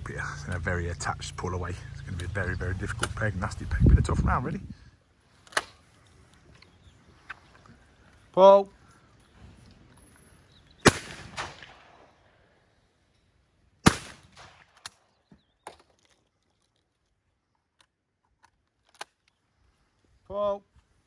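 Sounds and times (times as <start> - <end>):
shotgun shots with echo: 10.8 - 12.1, 13.8 - 14.8
gun reloading clicks: 17.8 - 19.4.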